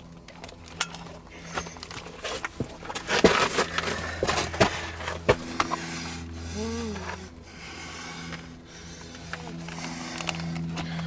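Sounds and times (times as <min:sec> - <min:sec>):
footsteps on rock and loose ground: 0:01.6 - 0:05.8.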